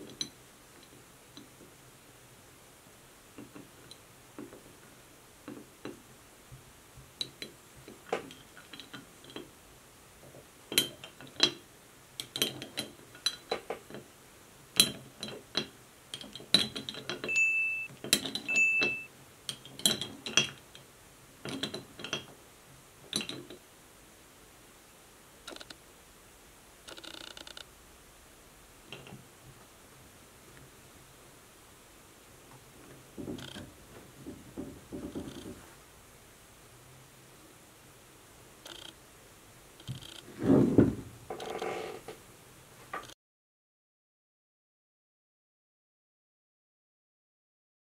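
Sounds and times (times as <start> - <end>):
corkscrew and glass bottle clinking: 14.8 - 20.6.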